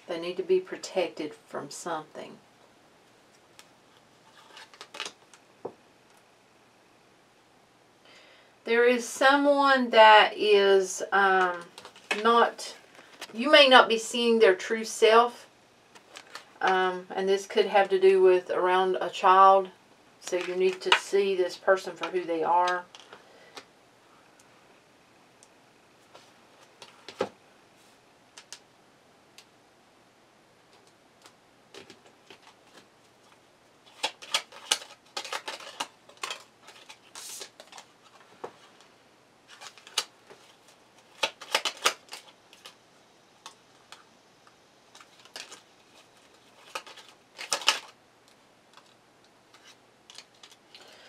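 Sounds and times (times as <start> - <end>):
cards shuffling: 3.3 - 5.4, 11.4 - 13.4, 15.9 - 16.6, 30.7 - 38.9, 39.5 - 42.8, 44.9 - 48.0, 48.7 - 51.0.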